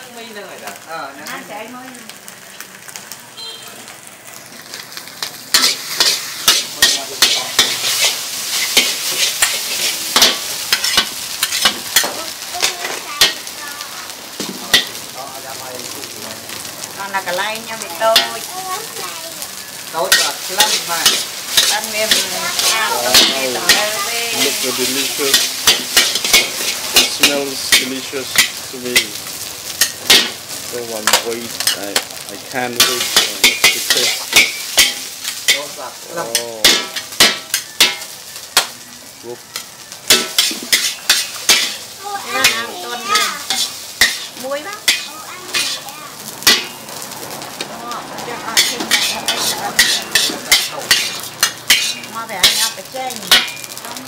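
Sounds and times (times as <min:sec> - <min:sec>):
food sizzling in pan: 0:00.0 - 0:54.0
metal spatula scraping wok: 0:04.7 - 0:13.5, 0:17.1 - 0:18.5, 0:19.6 - 0:30.4, 0:31.0 - 0:38.8, 0:39.6 - 0:46.9, 0:48.3 - 0:53.8.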